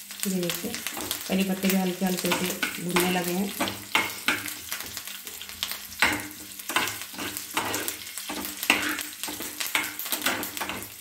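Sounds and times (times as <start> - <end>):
spices sizzling in hot oil: 0.0 - 11.0
steel spoon scraping a pan: 2.2 - 11.0.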